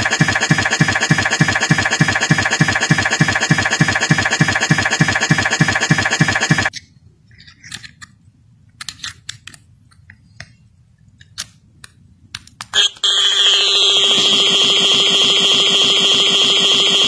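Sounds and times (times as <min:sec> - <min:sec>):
loud steady looping buzz: 0:00.0 - 0:06.7, 0:12.8 - 0:17.0
low hum: 0:00.0 - 0:06.7.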